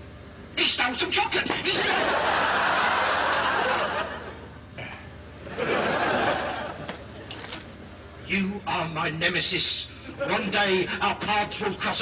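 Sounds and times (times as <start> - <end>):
studio audience laughing: 1.7 - 4.6, 5.4 - 7.3.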